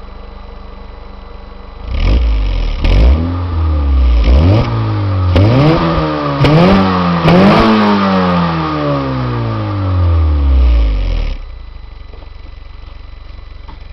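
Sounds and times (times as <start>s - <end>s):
low engine hum: 0.0s - 13.9s
car engine revving: 1.8s - 11.5s.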